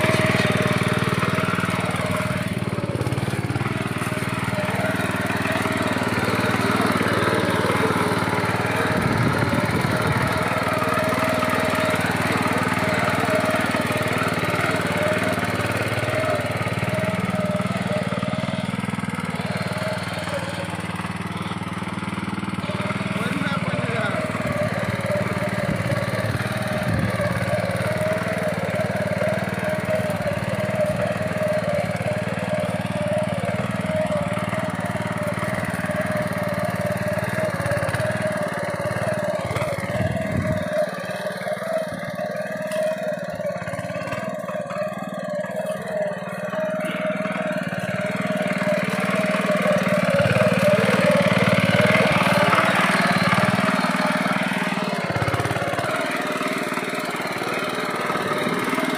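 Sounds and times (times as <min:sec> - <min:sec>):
power weeder engine running: 0:00.0 - 0:58.9
tines churning soil: 0:00.0 - 0:58.9.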